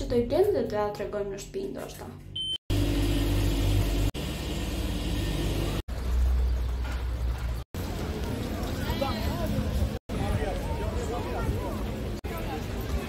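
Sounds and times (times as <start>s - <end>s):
street traffic rumble: 3.6s - 13.0s.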